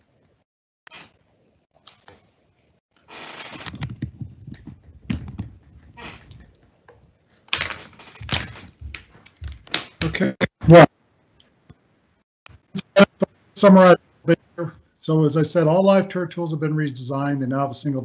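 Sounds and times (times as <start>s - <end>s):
rustling noise: 0.9s - 10.2s
clicks and knocks: 3.6s - 10.2s.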